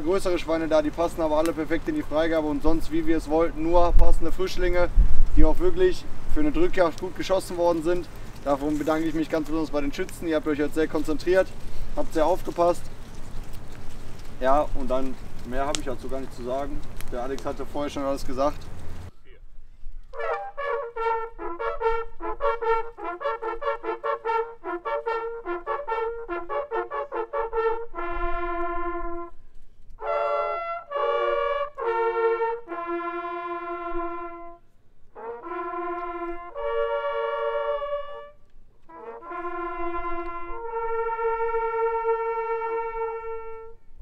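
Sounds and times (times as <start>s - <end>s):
hunting horns playing: 20.1s - 29.4s, 30.0s - 43.9s.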